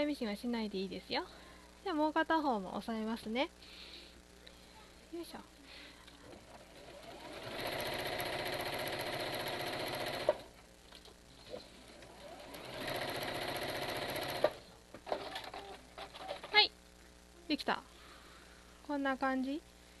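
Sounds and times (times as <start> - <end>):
sewing machine stitching: 6.3 - 10.5, 11.9 - 16.6.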